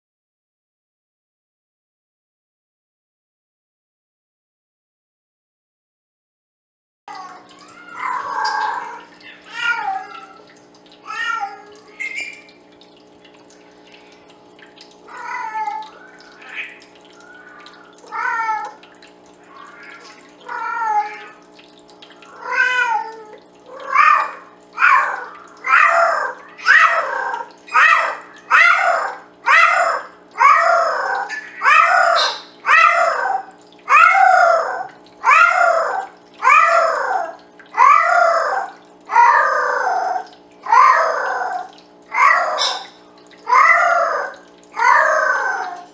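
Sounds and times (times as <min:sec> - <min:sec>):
cat meowing loudly: 0:07.1 - 0:10.4, 0:11.0 - 0:12.0, 0:15.1 - 0:16.8, 0:18.0 - 0:18.8, 0:19.5 - 0:21.4, 0:22.3 - 0:39.5.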